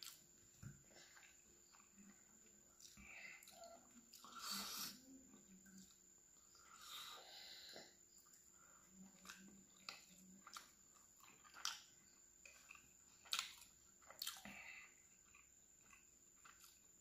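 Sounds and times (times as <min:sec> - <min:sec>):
wet chewing and lip smacks: 0:09.1 - 0:14.6, 0:15.2 - 0:16.9.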